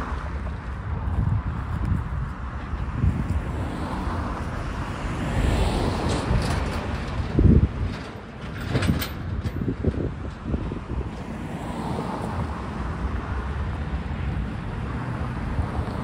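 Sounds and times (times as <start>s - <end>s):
car passing: 0.0s - 7.9s, 10.4s - 16.0s
knocks and clanks: 6.0s - 10.7s
truck wheels thumping on rails: 6.0s - 11.3s.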